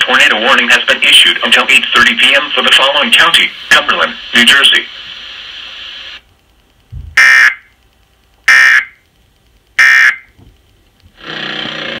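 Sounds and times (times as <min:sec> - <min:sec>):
steady multi-tone sound: 0:00.0 - 0:10.9
low thump: 0:06.9 - 0:07.2
buzzy digital squawks: 0:07.2 - 0:07.7, 0:08.5 - 0:09.0, 0:09.8 - 0:10.3.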